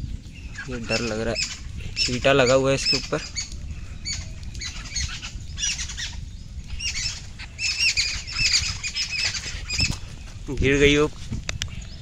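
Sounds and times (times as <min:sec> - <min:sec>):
small bird squawking: 0:00.5 - 0:10.0.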